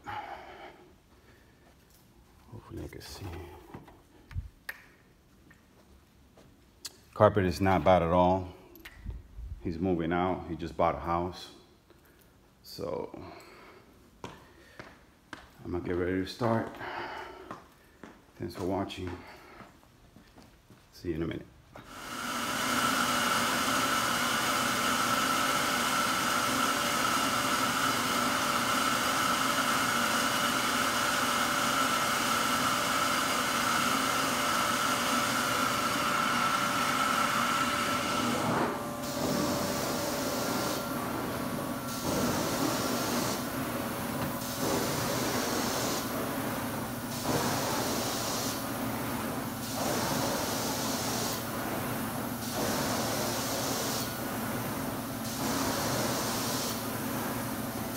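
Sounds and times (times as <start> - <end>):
carpet cleaner vacuum hissing: 21.8 - 57.9.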